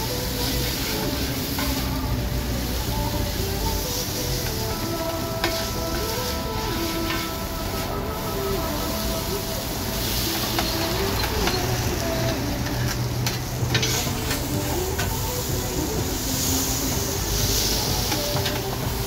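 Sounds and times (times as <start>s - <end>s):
noodles sizzling on griddle: 0.0s - 19.0s
metal spatulas scraping: 10.3s - 15.2s.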